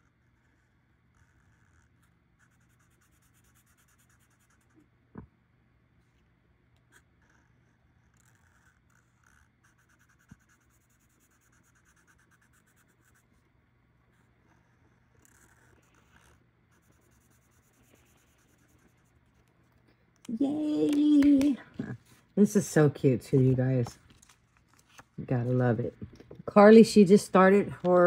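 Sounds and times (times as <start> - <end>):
marker scratching on paper: 0.1 - 4.8, 6.9 - 13.3, 14.1 - 19.5.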